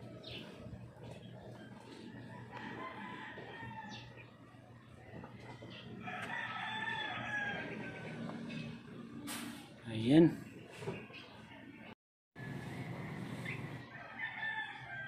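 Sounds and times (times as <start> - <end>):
rooster crowing: 1.9 - 4.2, 5.9 - 8.4, 12.4 - 15.0.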